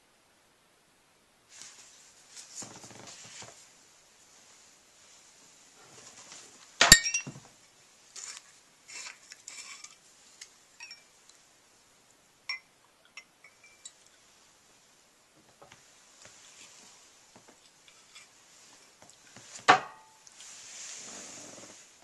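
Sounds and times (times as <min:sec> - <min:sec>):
bottle clinking against glass: 0:06.8 - 0:07.4, 0:10.8 - 0:11.1, 0:12.5 - 0:14.0
glass clinking: 0:06.8 - 0:07.4, 0:10.8 - 0:11.2, 0:12.5 - 0:14.1, 0:19.7 - 0:20.3
glass handling noises: 0:06.8 - 0:07.5, 0:10.8 - 0:11.2, 0:12.5 - 0:14.1, 0:19.6 - 0:20.3.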